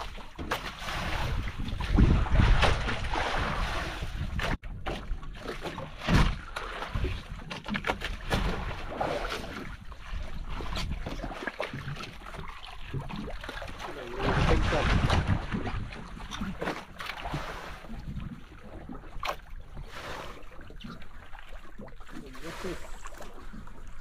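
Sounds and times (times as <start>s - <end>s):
sea water around boat: 0.0s - 24.0s
wind buffeting microphone: 1.0s - 4.6s.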